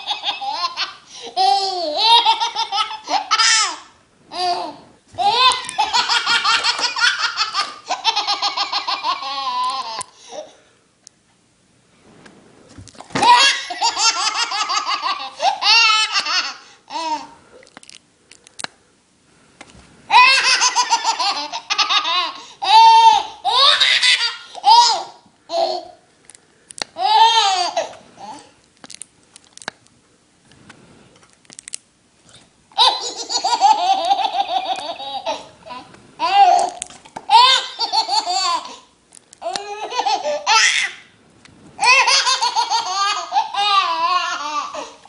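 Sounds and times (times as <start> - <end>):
baby laughing: 0.0 - 10.6, 13.2 - 17.4, 20.1 - 26.0, 27.0 - 28.5, 32.8 - 41.0, 41.8 - 45.0.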